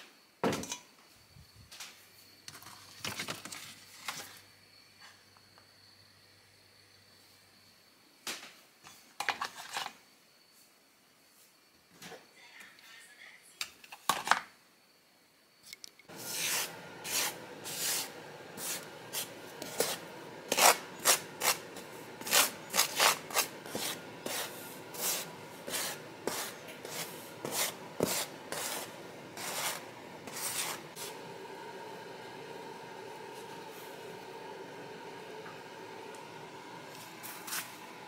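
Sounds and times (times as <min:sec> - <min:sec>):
hands rubbing flour on a tray: 0:22.2 - 0:31.0.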